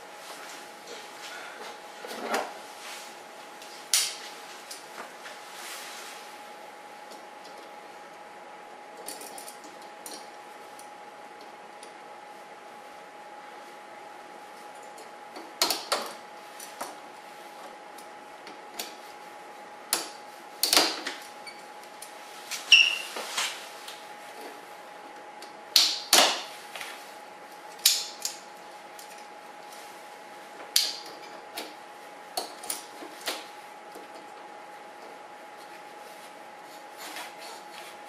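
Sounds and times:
faint steady hum: 0.0s - 38.0s
brief squeak: 22.7s - 23.1s.

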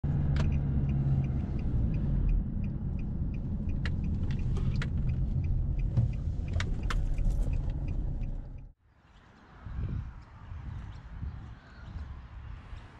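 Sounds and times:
car road and engine rumble: 0.0s - 8.8s
faint regular ticking: 0.3s - 8.7s.

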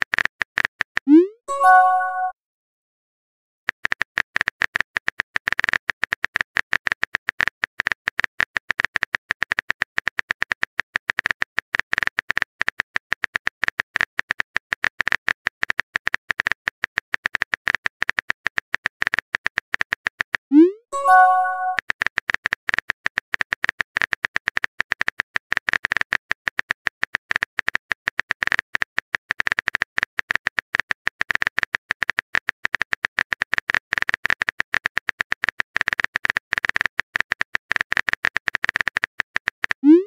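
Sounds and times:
phone keyboard typing clicks: 21.0s - 40.0s.

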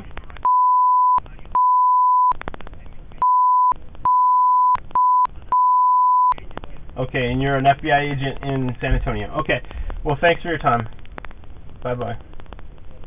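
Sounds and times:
censor bleep tone: 0.4s - 2.4s, 3.2s - 6.4s.

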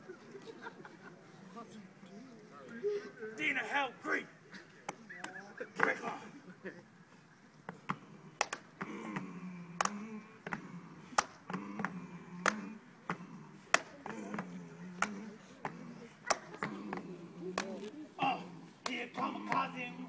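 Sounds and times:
sharp rhythmic claps: 7.7s - 17.8s, 18.8s - 19.8s
men chanting in low voices: 8.8s - 20.0s.

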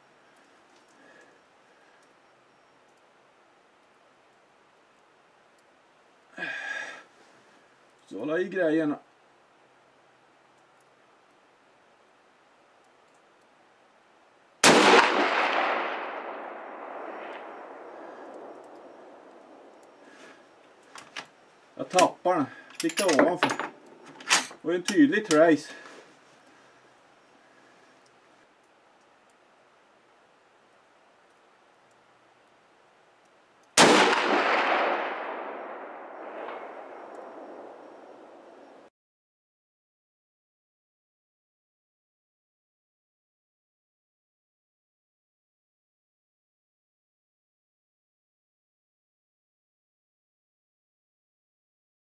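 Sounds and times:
rifle shot: 14.6s - 19.8s, 33.8s - 38.8s
long echo of shot: 14.6s - 20.2s, 33.8s - 38.9s.

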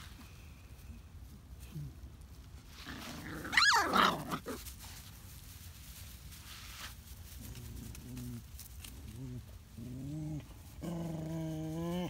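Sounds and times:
puppy yelping: 3.4s - 4.5s
puppy growling: 7.5s - 12.0s.

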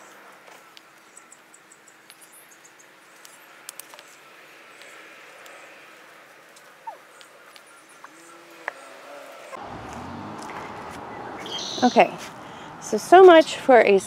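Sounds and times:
thin high chirps: 11.4s - 12.0s.

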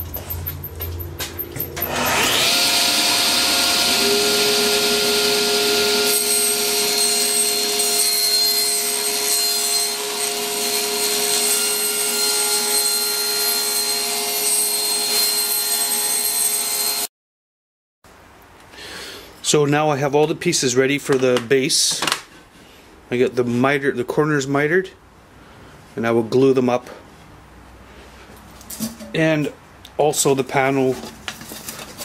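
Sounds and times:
table saw whining: 0.0s - 17.1s
saw blade cutting wood: 1.6s - 17.1s.

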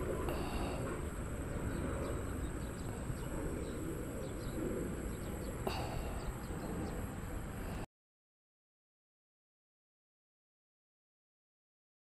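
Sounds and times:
small birds chirping: 0.0s - 7.8s
low background rumble: 0.0s - 7.9s.

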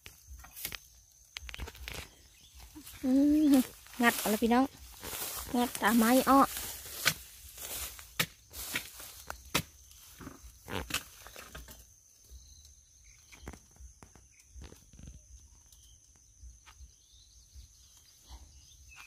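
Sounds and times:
digging tool striking soil: 0.0s - 2.1s, 5.0s - 11.8s.

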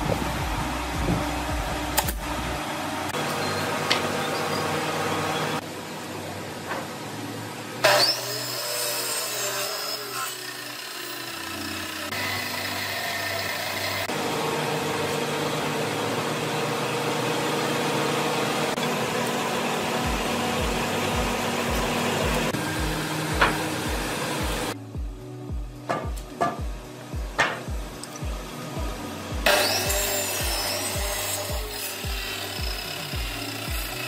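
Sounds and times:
low rapid thumps: 0.0s - 2.3s
woodworking machine humming: 0.0s - 24.8s, 27.0s - 34.0s.

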